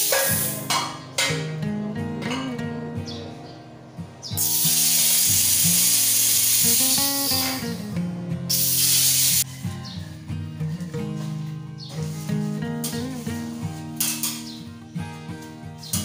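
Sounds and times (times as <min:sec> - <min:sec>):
pressurised gas hissing: 0:00.0 - 0:01.0, 0:04.3 - 0:07.9, 0:08.5 - 0:09.5.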